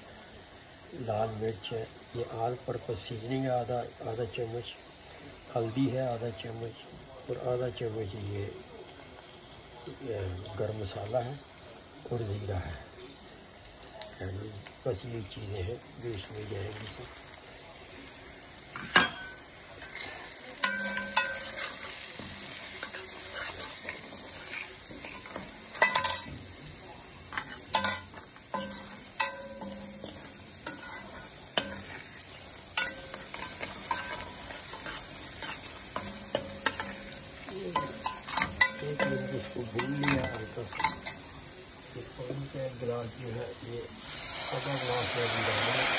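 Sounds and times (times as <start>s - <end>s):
spices sizzling in hot oil: 0.0s - 45.9s
metal spoon scraping a pan: 18.7s - 41.4s.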